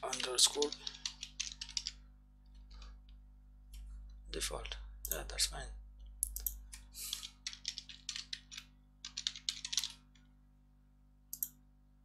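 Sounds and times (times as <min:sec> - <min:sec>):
typing on computer keyboard: 0:00.0 - 0:03.0, 0:06.2 - 0:10.2.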